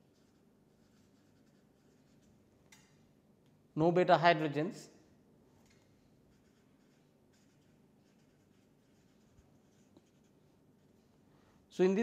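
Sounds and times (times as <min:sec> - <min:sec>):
marker scratching on paper: 0:00.0 - 0:02.4, 0:06.3 - 0:11.0.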